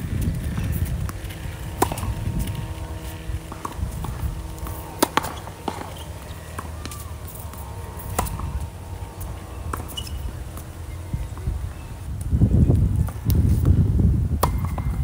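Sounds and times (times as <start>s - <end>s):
low steady rumble: 0.0s - 15.0s
rackets hitting tennis ball: 0.1s - 13.8s, 14.4s - 15.0s
tennis ball bouncing: 0.2s - 11.6s, 14.4s - 15.0s.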